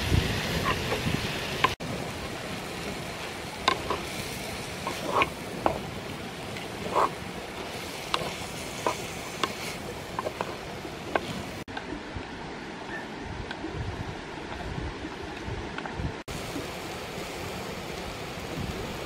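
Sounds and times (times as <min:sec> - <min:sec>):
stream rushing: 0:00.0 - 0:19.0
spoon scraping earthenware pot: 0:04.8 - 0:05.4, 0:06.8 - 0:11.6.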